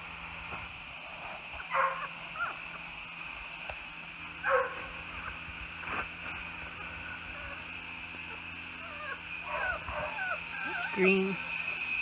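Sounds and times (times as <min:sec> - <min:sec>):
puppies yipping: 0:01.6 - 0:02.9, 0:04.4 - 0:06.0, 0:06.7 - 0:12.0
faint puppy squeaks: 0:08.3 - 0:12.0.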